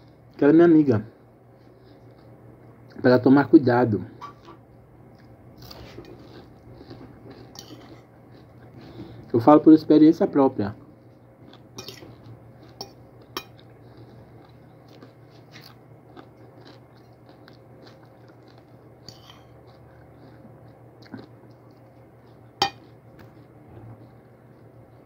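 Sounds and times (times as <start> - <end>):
steady low hum: 0.0 - 25.0
chewing and crunching food: 1.5 - 3.1, 4.2 - 9.8, 10.7 - 25.0
fork clinking: 11.8 - 12.1, 22.6 - 22.9.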